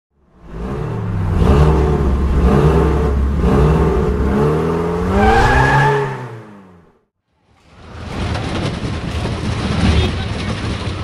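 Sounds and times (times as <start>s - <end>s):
car engine revving: 0.3s - 7.0s.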